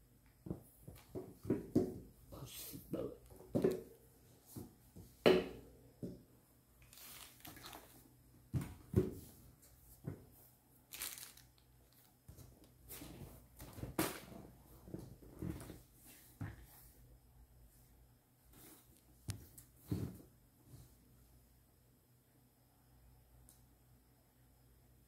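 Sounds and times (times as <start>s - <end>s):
paper and plastic rustling: 6.8s - 8.0s, 10.9s - 14.3s.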